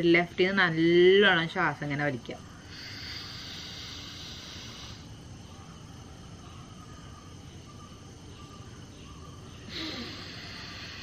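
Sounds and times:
breathing out: 0:09.7 - 0:11.0.

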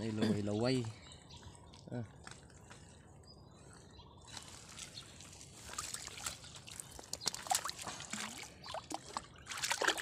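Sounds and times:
small splashes: 0:04.8 - 0:10.0
water trickling and dripping: 0:04.8 - 0:10.0.

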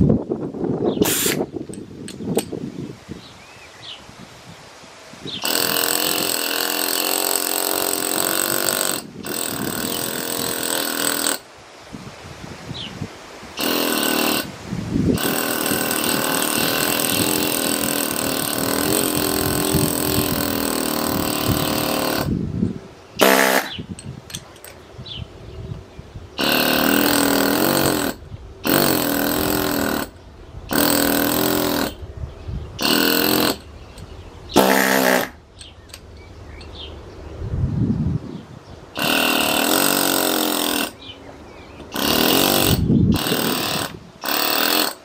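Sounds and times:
air hammer chipping rock: 0:01.0 - 0:02.6, 0:05.4 - 0:11.5, 0:13.6 - 0:14.5, 0:15.1 - 0:22.4, 0:23.2 - 0:24.8, 0:26.4 - 0:32.0, 0:32.8 - 0:36.1, 0:39.0 - 0:41.1, 0:41.9 - 0:45.0.

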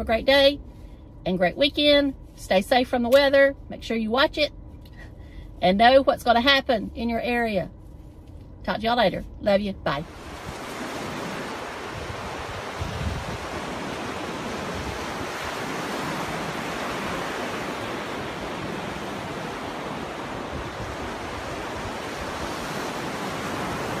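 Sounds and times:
waves breaking on a beach: 0:10.0 - 0:24.0.

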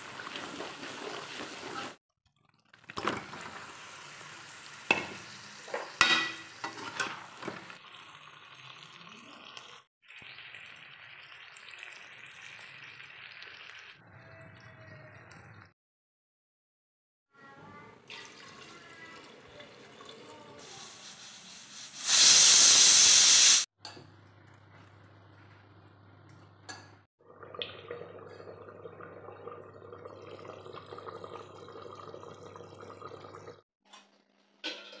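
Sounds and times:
pressure cooker steam hiss: 0:20.6 - 0:23.7.

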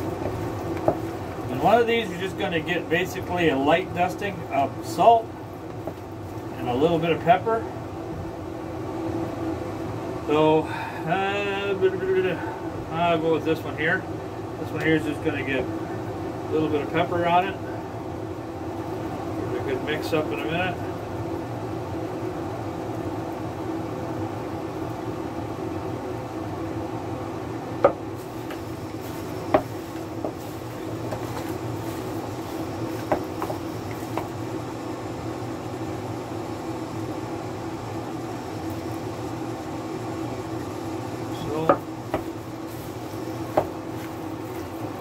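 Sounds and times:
mechanical hum: 0:00.0 - 0:45.0
hand mixing chicken in bowl: 0:28.2 - 0:34.4.

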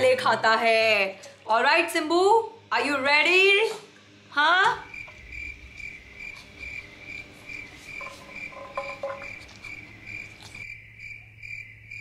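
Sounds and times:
cricket chirping: 0:04.8 - 0:12.0
steel dog bowls clinking: 0:07.9 - 0:10.4.

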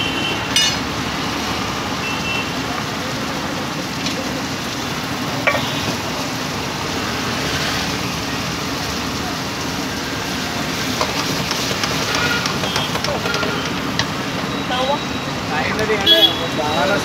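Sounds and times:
food sizzling in a pan: 0:00.2 - 0:17.0
utensils clinking on metal: 0:00.6 - 0:00.9
gas stove flame: 0:08.4 - 0:14.6.

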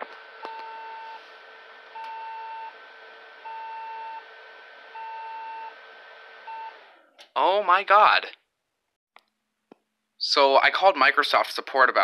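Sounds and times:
long computer beeps: 0:03.4 - 0:04.2, 0:05.0 - 0:05.8.

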